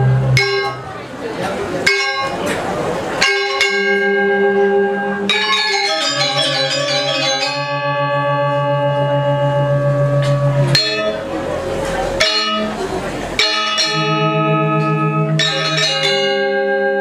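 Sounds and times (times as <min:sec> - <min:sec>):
low sustained gong tone: 0:07.6 - 0:11.6.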